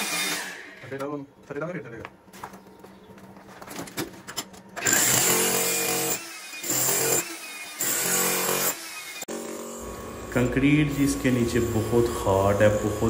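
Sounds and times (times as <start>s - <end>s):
demolition hammer chiselling concrete: 4.8s - 9.8s.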